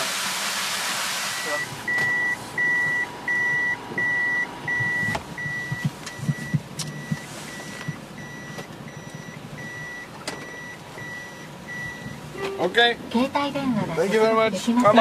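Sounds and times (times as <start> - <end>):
reverse warning beeper: 1.3 - 12.7.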